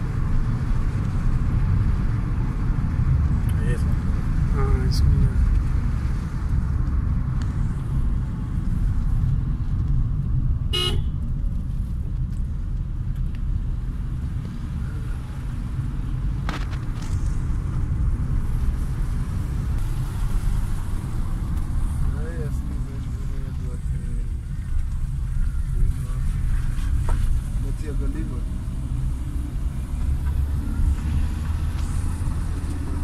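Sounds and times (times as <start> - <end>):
car engine and tyres rumbling: 0.0 - 33.0
car horn toot: 10.7 - 11.2.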